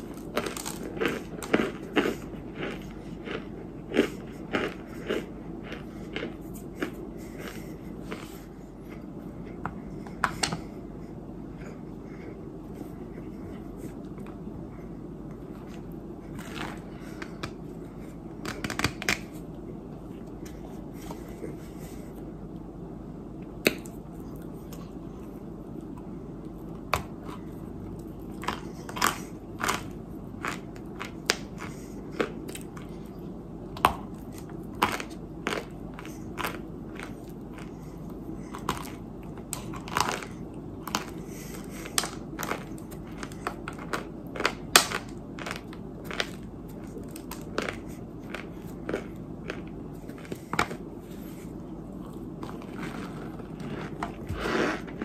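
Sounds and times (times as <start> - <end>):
low background hum: 0.0 - 55.0.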